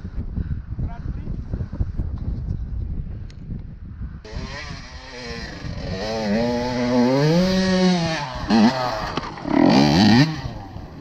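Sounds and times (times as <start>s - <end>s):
dirt bike engine revving: 4.3s - 11.0s.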